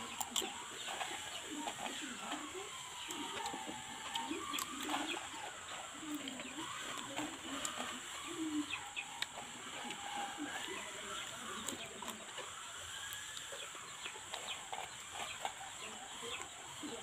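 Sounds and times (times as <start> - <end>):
crunching of chewed chips: 0.0 - 7.9
chickens clucking: 0.0 - 17.0.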